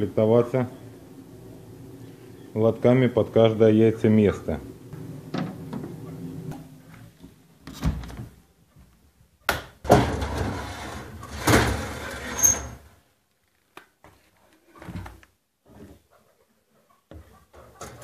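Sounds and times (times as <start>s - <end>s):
trays scraping and rattling: 9.9s - 12.8s.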